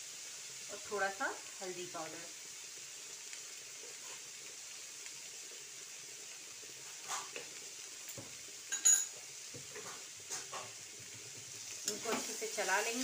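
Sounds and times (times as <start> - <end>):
vegetables sizzling in pan: 0.0 - 13.0
steel spoon clinking pan: 8.7 - 9.2.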